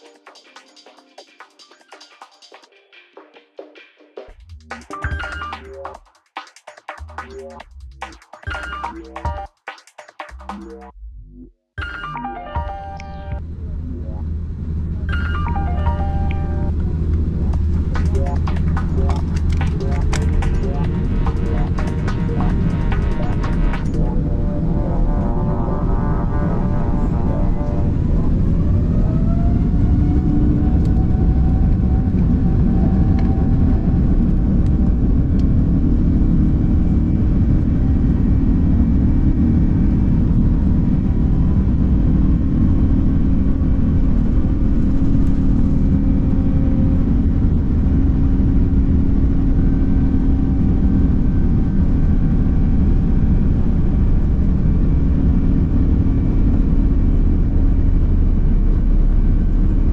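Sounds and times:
jet engine whine: 0:13.0 - 0:59.9
jet engine rumble in cabin: 0:13.4 - 0:59.9.

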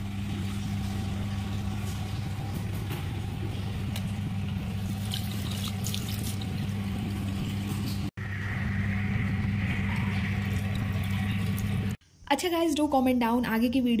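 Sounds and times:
steady low hum: 0:00.0 - 0:12.3
tap water running into basin: 0:04.6 - 0:07.4.

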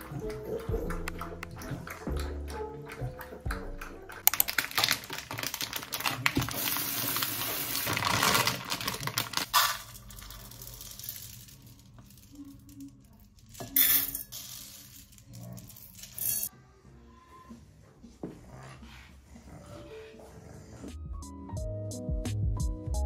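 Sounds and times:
dry rice pouring into plastic: 0:04.3 - 0:12.4.

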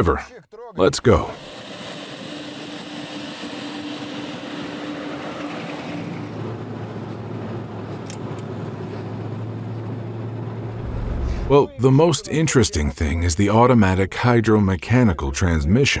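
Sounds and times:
car engine and tyre noise: 0:01.4 - 0:11.6.

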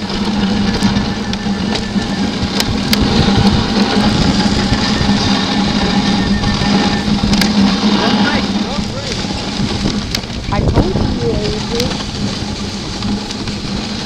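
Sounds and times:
constant low hum: 0:00.0 - 0:14.0
sled runners rumbling on snow: 0:00.0 - 0:14.0.

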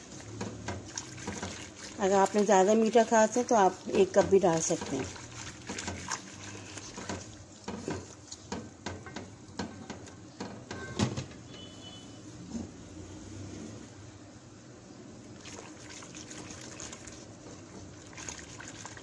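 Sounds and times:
whisk scraping metal pot: 0:00.0 - 0:08.6.

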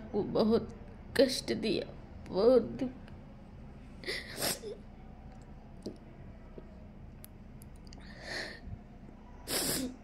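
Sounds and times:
woman breathing tearfully: 0:08.0 - 0:08.8.

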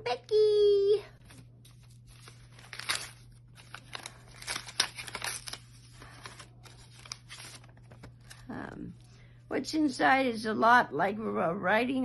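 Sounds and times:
paper envelope rustling: 0:01.2 - 0:08.5.

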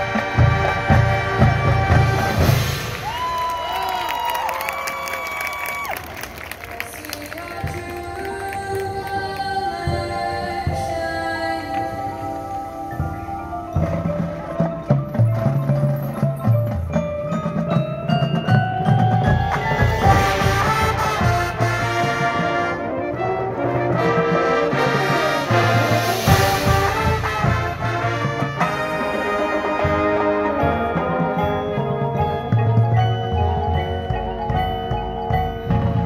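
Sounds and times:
marching band playing: 0:00.0 - 0:11.2, 0:12.8 - 0:36.0
marimba: 0:06.9 - 0:24.3, 0:25.2 - 0:36.0.

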